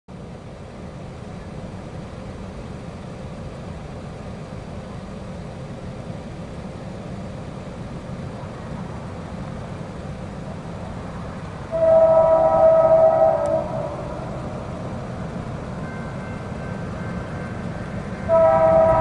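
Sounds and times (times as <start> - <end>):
diesel locomotive rumble: 0.1 - 19.0.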